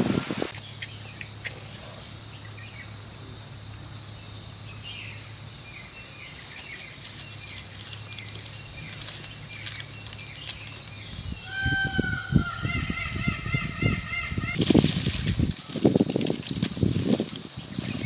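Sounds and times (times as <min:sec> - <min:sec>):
bird chirping: 0:00.5 - 0:14.7.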